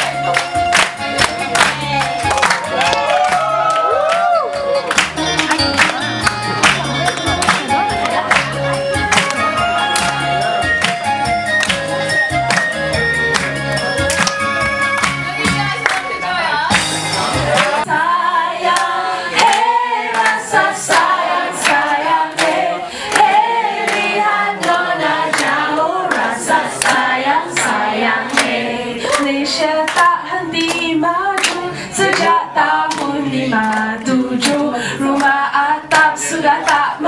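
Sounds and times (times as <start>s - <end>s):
audience clapping along: 0.0s - 37.0s
group singing through microphone: 17.1s - 37.0s.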